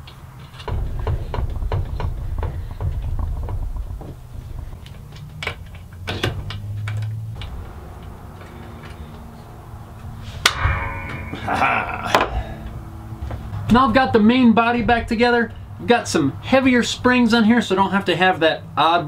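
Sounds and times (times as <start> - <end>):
ringing metal clank: 10.4 - 13.7.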